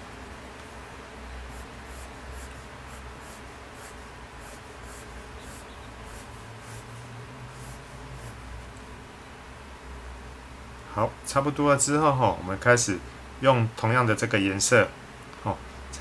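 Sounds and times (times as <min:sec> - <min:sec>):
pencil scratching on paper: 0:01.5 - 0:08.5.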